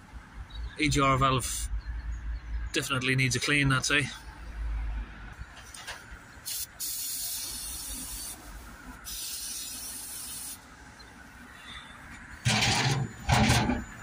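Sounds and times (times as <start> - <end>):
aerosol spray hissing: 6.5 - 10.6.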